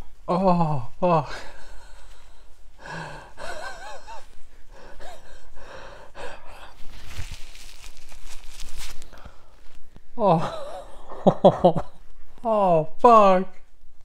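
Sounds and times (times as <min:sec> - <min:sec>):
man gasping and breathing hard: 0:00.5 - 0:07.3
paper napkin rustling: 0:06.6 - 0:09.9.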